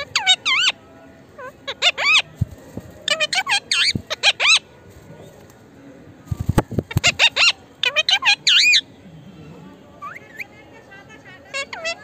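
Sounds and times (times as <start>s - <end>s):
parakeet squawking: 0.0s - 0.8s, 1.4s - 2.4s, 3.0s - 4.7s, 6.9s - 8.9s, 11.5s - 12.0s.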